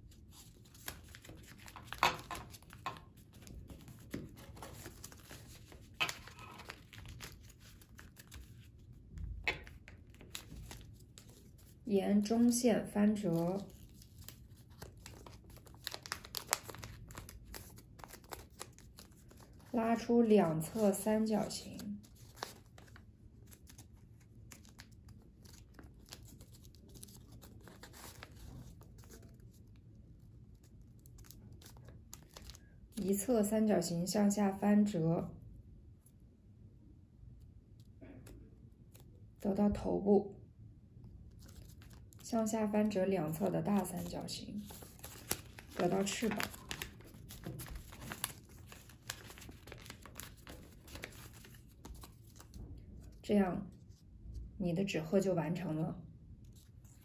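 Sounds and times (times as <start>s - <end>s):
paper rustling and crinkling: 0.0s - 11.9s, 13.2s - 20.1s, 21.5s - 33.0s, 41.3s - 53.2s
crisp paper clicks: 44.6s - 52.5s.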